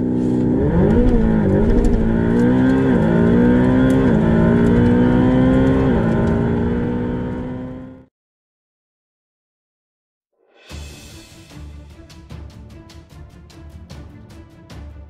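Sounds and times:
car engine at full throttle: 0.0s - 8.1s.

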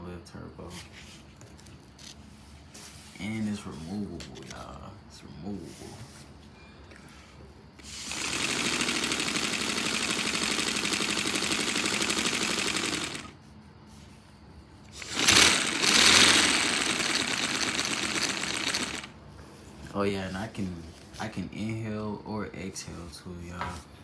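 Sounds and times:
model engine clattering: 8.1s - 13.3s, 15.0s - 19.1s.

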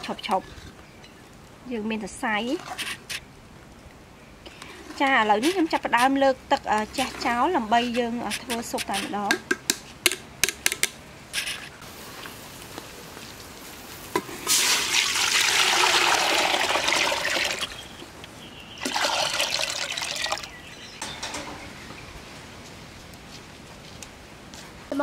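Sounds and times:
water pouring into metal pot: 14.5s - 17.8s, 18.8s - 20.5s.

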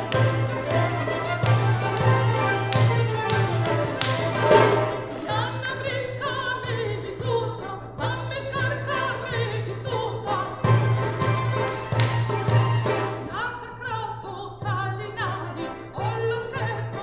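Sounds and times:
mandoloncello: 0.0s - 13.4s
accordion: 0.0s - 17.0s
violin: 0.0s - 17.0s
woman singing operatically: 5.1s - 11.4s, 13.2s - 17.0s.

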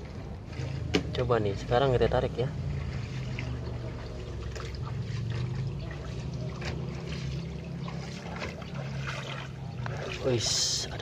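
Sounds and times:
shallow water trickling: 0.0s - 11.0s.

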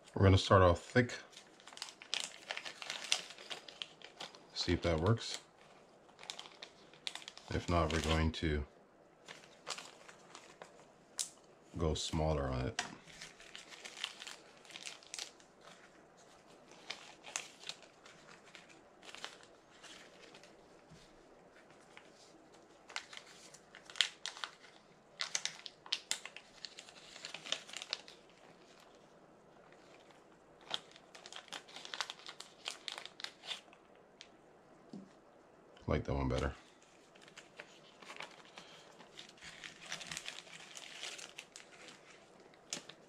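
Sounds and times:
plastic bags crinkling: 0.9s - 8.5s, 9.2s - 11.4s, 12.6s - 34.3s, 36.6s - 43.0s.

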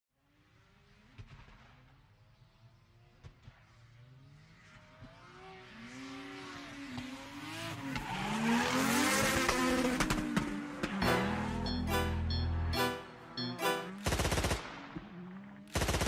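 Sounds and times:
car engine revving: 5.2s - 15.7s.

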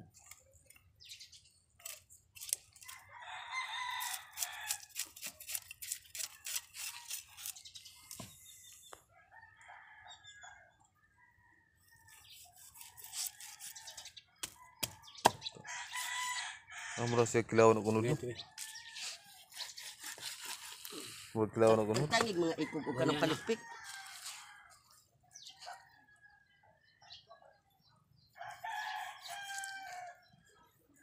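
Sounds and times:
knife scraping fish scales: 1.8s - 3.0s, 4.0s - 8.6s, 12.1s - 14.1s, 18.6s - 21.4s
rooster crowing: 3.0s - 4.9s, 9.2s - 10.7s, 15.6s - 17.2s, 22.3s - 25.0s, 28.3s - 30.3s.

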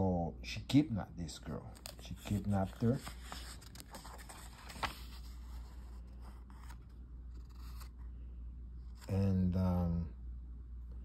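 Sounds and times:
paper pages rustling and sliding: 1.5s - 8.0s.

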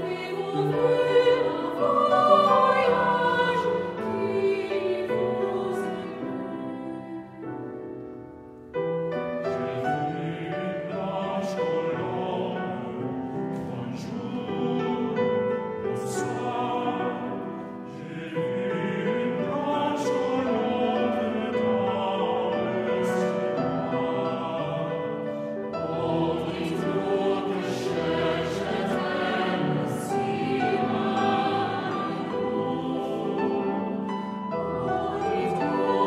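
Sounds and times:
mixed choir singing: 0.0s - 7.8s, 9.4s - 36.0s.

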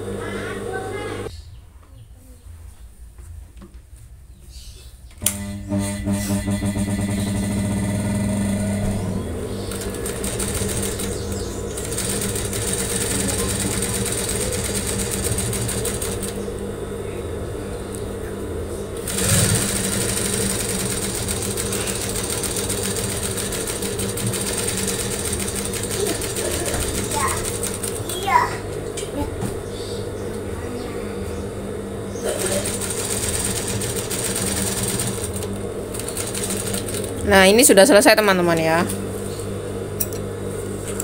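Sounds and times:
electric sewing machine running: 5.2s - 16.9s, 18.9s - 28.6s, 32.2s - 37.7s.

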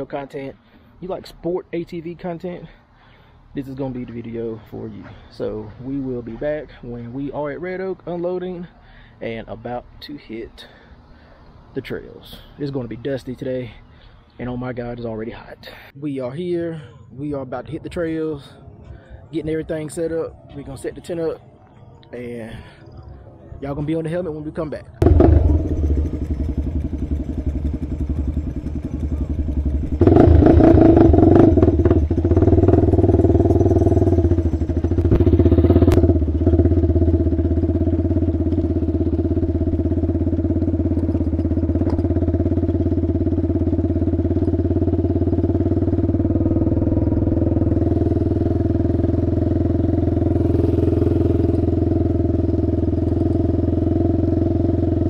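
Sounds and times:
quad bike engine revving: 25.0s - 55.0s.

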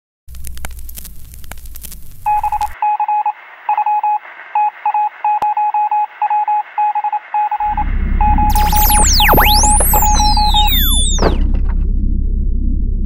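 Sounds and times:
crackling static: 0.3s - 4.8s, 8.5s - 11.8s
morse code beeps: 2.3s - 11.6s.

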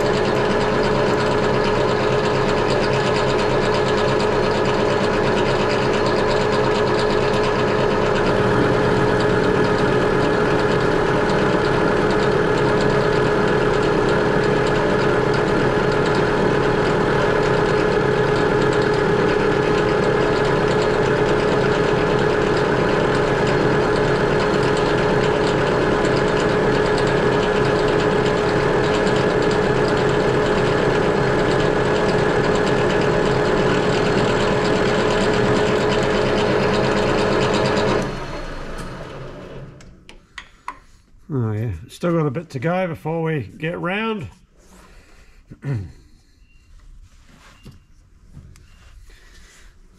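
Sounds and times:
metal lathe hum and whine: 0.0s - 39.8s
deeper machine hum: 0.0s - 40.1s, 41.2s - 47.0s.

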